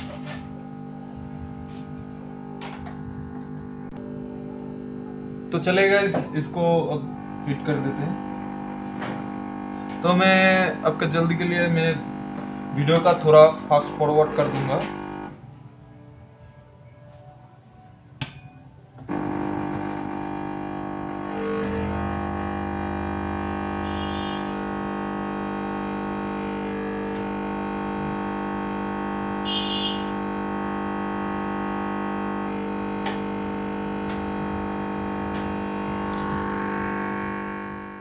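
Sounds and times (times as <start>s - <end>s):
synthesizer chords: 0.5s - 38.0s
click: 36.1s - 36.3s.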